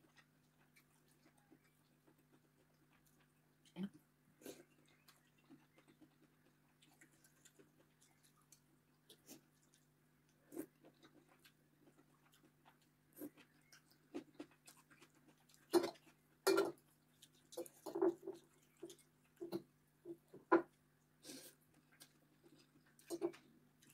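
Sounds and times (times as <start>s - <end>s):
faint low hum: 0.0s - 23.9s
cutlery scraping ceramic bowl: 15.7s - 16.8s.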